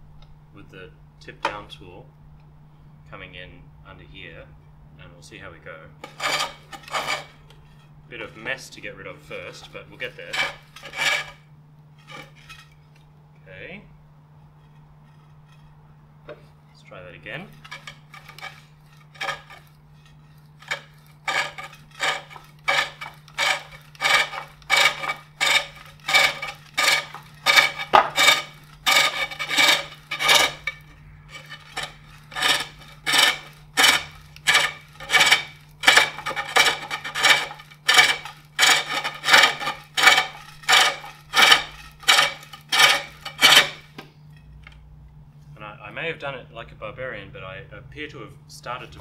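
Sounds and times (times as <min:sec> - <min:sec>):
hook tool scraping wooden bowl: 0:06.0 - 0:08.6, 0:09.2 - 0:12.8, 0:14.4 - 0:15.8, 0:17.3 - 0:44.0.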